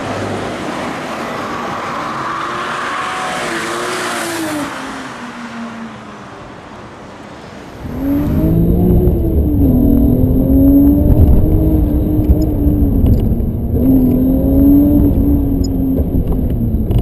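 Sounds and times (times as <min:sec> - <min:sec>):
car engine revving: 0:00.0 - 0:06.4, 0:07.7 - 0:17.0.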